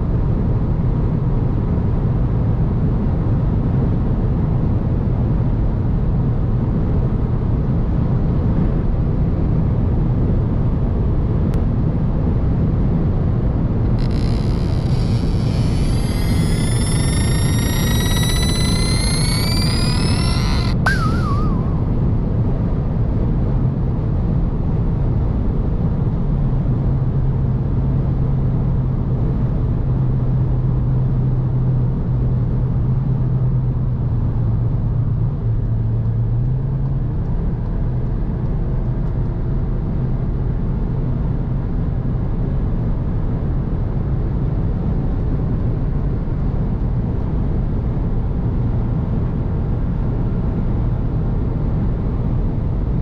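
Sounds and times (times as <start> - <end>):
car engine drone: 13.8 - 22.0.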